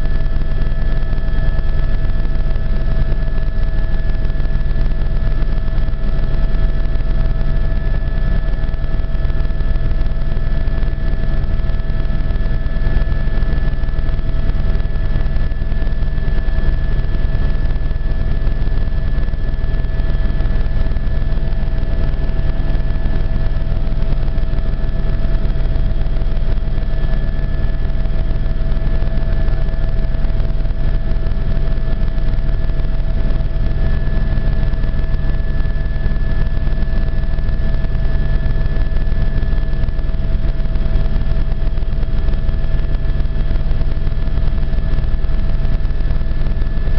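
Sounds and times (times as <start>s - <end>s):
helicopter engine rumble: 0.0s - 46.9s
helicopter high whine: 0.0s - 46.9s.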